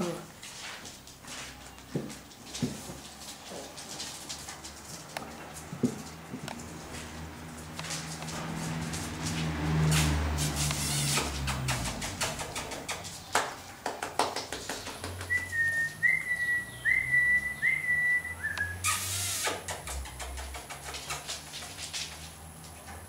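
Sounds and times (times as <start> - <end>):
person whistling short notes: 15.3 - 18.9.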